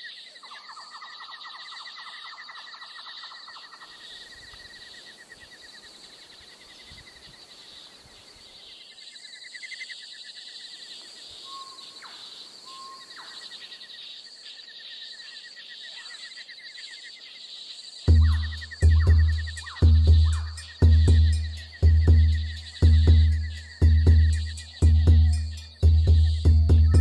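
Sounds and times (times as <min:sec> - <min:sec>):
insects trilling: 0:00.0 - 0:27.0
bird whistles and chirps: 0:11.4 - 0:13.4, 0:18.1 - 0:27.0.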